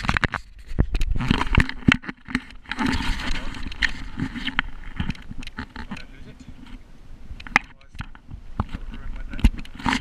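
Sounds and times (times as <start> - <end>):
sharp clicks and knocks: 0.0 - 6.8, 7.4 - 10.0
kayak paddle splashing water: 1.1 - 5.9.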